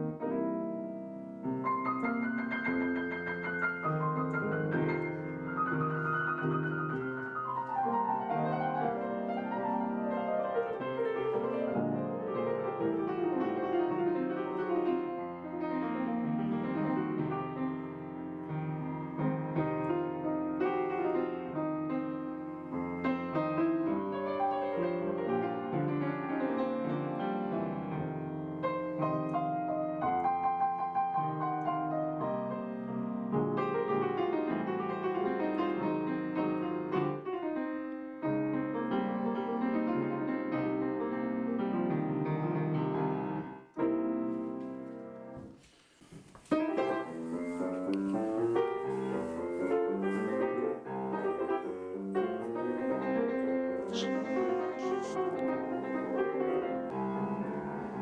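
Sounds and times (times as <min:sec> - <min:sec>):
piano music: 0:00.0 - 0:45.6, 0:46.4 - 0:58.0.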